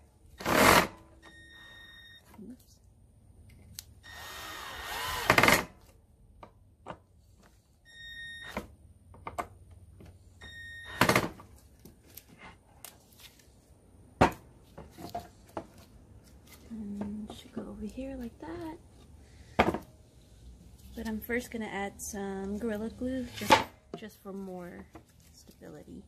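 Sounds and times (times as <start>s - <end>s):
cordless drill motor: 4.0s - 5.7s.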